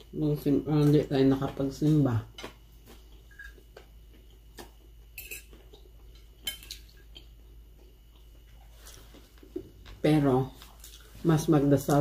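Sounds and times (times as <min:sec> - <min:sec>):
cutlery clinking on plates: 0:05.2 - 0:05.5.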